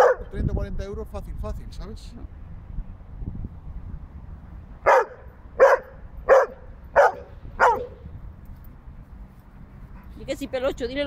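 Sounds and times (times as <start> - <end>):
dog barking: 0.0 - 0.3, 4.8 - 8.0.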